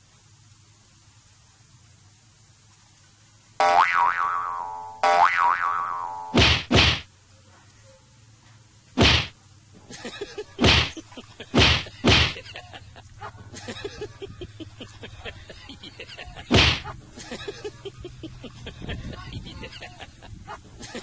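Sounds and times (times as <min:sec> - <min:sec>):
faint crackling and scuffling: 0:07.2 - 0:10.0.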